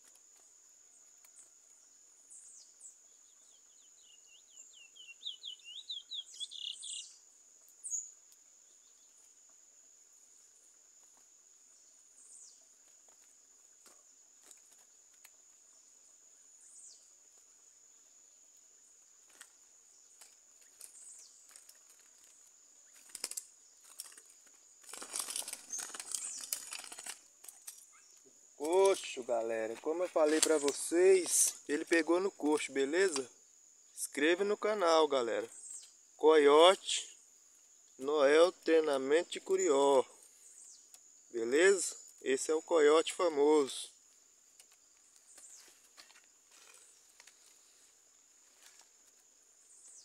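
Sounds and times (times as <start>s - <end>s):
bird chirps: 0.0s - 9.3s, 11.6s - 12.9s, 15.6s - 44.0s, 49.6s - 50.0s
high insect buzz: 0.0s - 50.0s
bird singing quick repeated notes: 3.8s - 7.2s
bird wings flapping: 12.8s - 15.4s, 19.2s - 27.8s, 30.0s - 31.6s.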